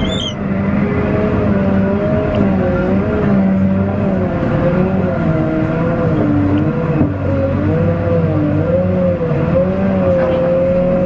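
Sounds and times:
hydraulic whining tones: 0.0 - 0.4
diesel engine low rumble: 0.0 - 11.0.

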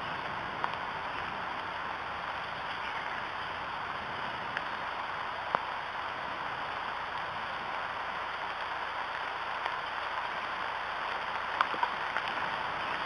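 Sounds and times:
steady rain falling: 0.0 - 13.0.

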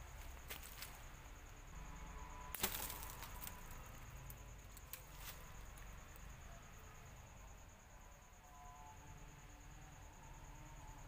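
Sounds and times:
rustling in dry leaves: 2.5 - 3.8.

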